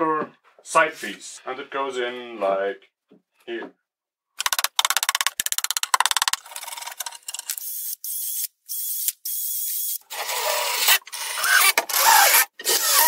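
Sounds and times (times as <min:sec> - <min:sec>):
cordless drill drilling into wood: 0:07.6 - 0:13.0.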